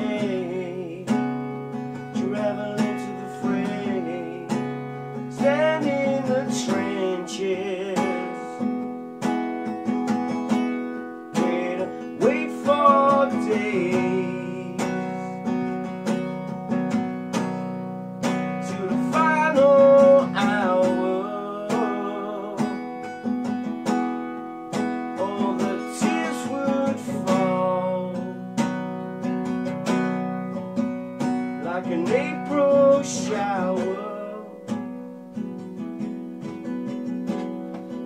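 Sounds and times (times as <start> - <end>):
man singing: 0.0 - 8.8, 10.5 - 16.3, 18.2 - 24.0, 24.7 - 28.7, 31.2 - 34.8
acoustic guitar strumming: 0.0 - 38.0.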